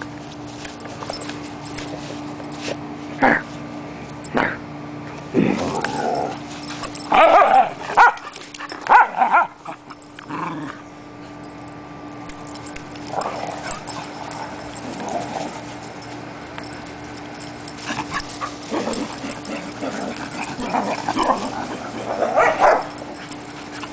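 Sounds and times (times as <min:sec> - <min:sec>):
faint steady hum: 0:00.0 - 0:23.9
dogs vocalizing in rough play: 0:05.3 - 0:11.4, 0:12.5 - 0:23.9.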